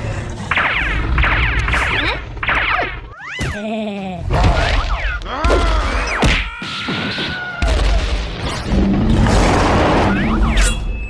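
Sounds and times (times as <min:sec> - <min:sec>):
held whistle-like tone: 0:10.3 - 0:11.0.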